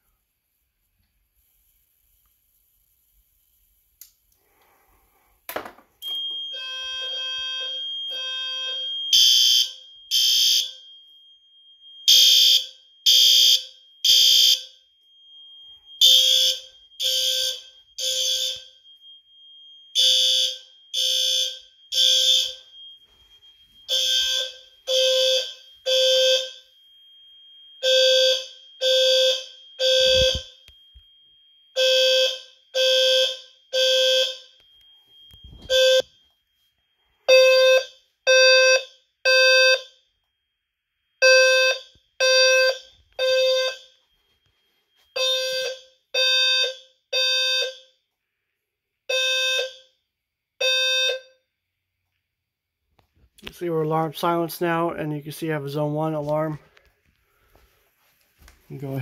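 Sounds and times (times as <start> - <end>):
fire alarm horn blasts: 6.0 - 27.0, 27.6 - 36.3, 37.3 - 40.0, 41.2 - 48.0, 49.1 - 50.0, 50.6 - 51.4.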